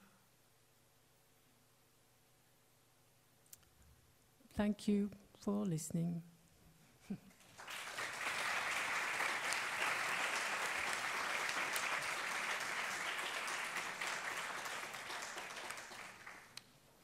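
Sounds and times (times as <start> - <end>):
audience applauding: 7.4 - 16.6.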